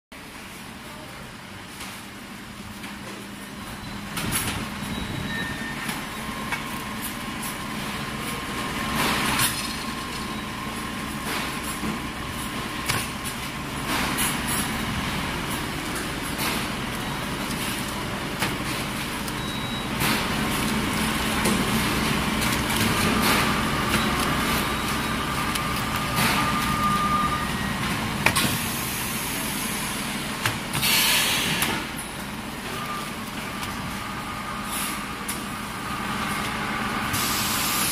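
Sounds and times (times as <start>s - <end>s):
pneumatic air hisses: 30.7s - 31.9s, 37.1s - 37.9s.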